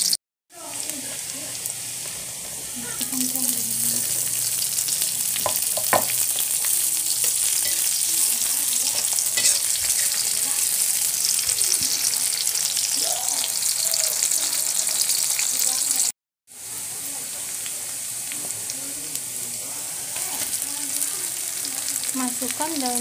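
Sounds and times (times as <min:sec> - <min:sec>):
food sizzling in hot oil: 0:00.0 - 0:23.0
metal spatula scraping a wok: 0:06.2 - 0:11.0.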